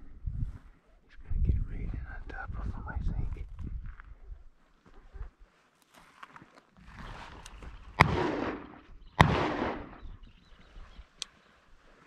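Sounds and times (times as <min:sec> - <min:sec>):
shotgun shots echoing: 0:08.0 - 0:10.2.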